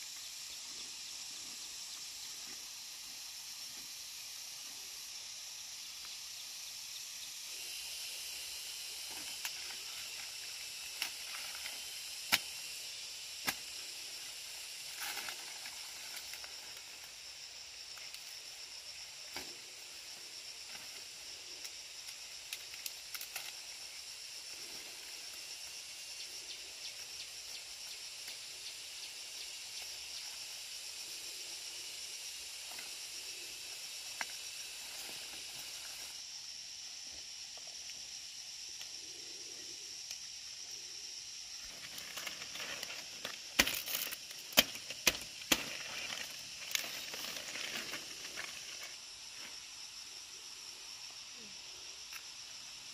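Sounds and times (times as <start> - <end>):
insect chorus hissing: 0.0 - 52.9
machete cutting pineapples: 12.2 - 12.5, 13.4 - 13.7, 43.4 - 46.8.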